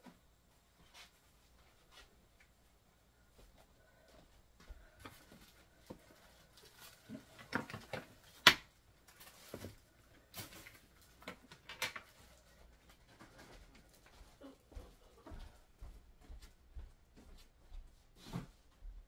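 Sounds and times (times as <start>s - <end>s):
clicks and knocks of small items: 7.0s - 12.4s.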